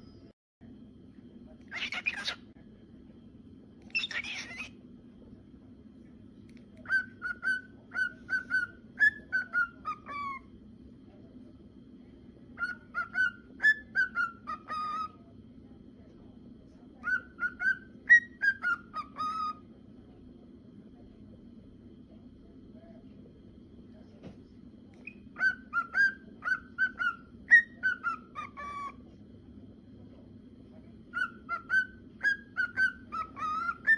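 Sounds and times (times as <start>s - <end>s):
cockatiel whistling song: 1.7s - 2.4s, 3.9s - 4.8s, 6.8s - 10.5s, 12.5s - 15.2s, 17.0s - 19.6s, 25.0s - 29.0s, 31.1s - 33.9s.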